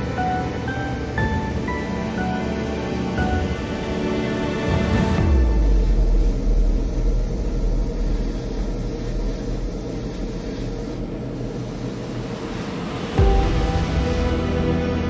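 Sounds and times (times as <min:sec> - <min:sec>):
airbrush spraying hiss: 0:05.2 - 0:15.0.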